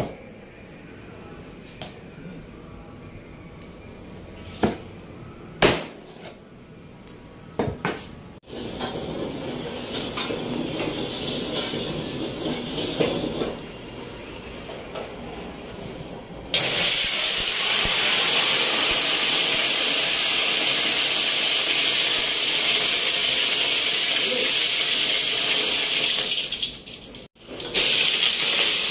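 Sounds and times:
kitchen noise: 7.6 - 19.0
loud steady flame hiss: 16.5 - 26.5.

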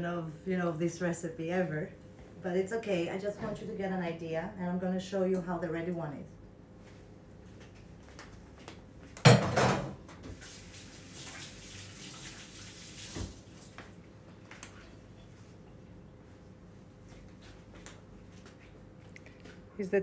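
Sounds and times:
kitchen tap running: 10.3 - 13.6.

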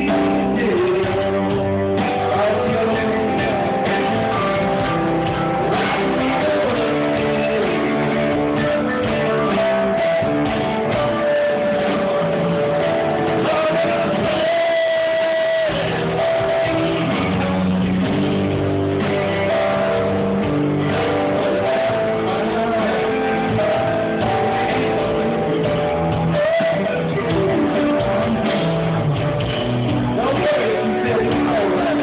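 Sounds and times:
person singing: 0.0 - 29.0, 30.1 - 32.0
lead guitar bending notes: 0.0 - 32.0
live rock band playing: 0.0 - 32.0.

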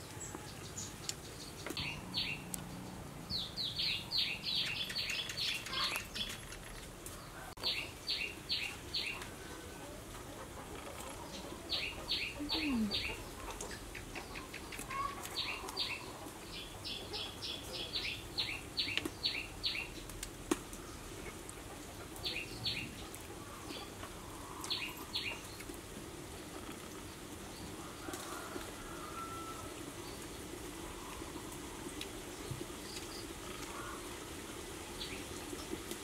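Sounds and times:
small bird chirping: 0.6 - 6.9.

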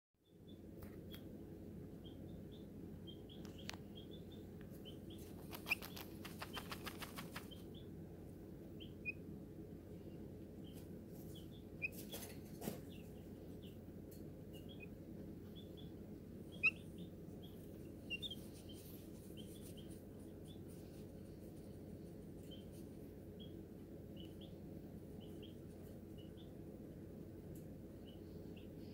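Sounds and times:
baby chick peeping: 0.2 - 28.9
scratchy rustles: 5.2 - 7.5.

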